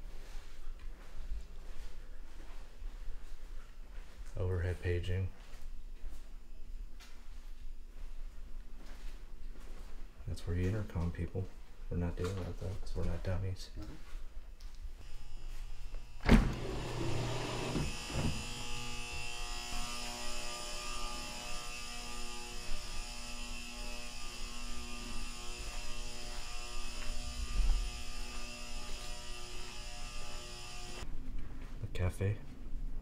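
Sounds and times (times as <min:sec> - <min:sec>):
steady mechanical hum: 0:14.8 - 0:33.0.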